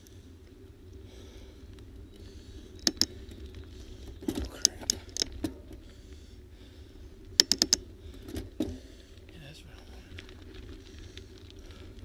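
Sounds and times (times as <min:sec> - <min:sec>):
tyres rumbling on rough road: 0:02.2 - 0:12.0
sharp rattling clicks: 0:02.8 - 0:03.2, 0:04.3 - 0:05.5, 0:07.4 - 0:07.8.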